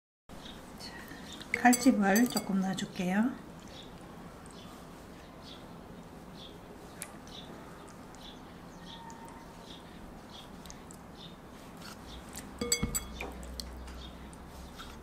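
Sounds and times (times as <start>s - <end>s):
clinks against glass bowl: 1.6s - 2.6s, 12.6s - 13.4s.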